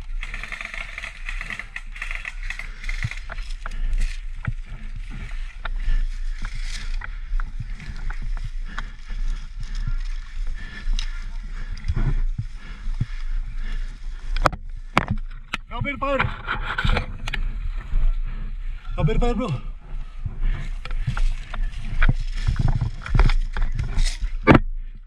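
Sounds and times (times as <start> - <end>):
dry grass and leaves rustling: 0.0 - 25.0
sharp clicks: 0.1 - 3.8
microphone handling rumble: 1.2 - 25.0.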